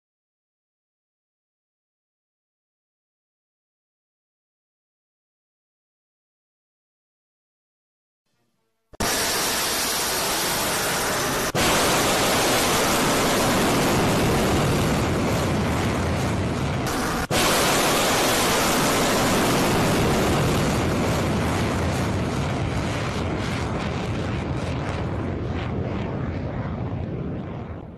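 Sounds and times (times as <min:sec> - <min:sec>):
rocket motor roaring: 0:09.0 - 0:27.8.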